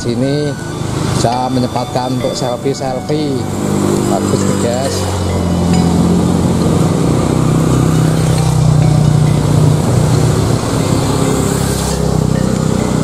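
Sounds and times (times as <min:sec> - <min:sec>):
steady traffic rushing noise: 0:00.0 - 0:13.0
vehicle engine running: 0:00.0 - 0:13.0.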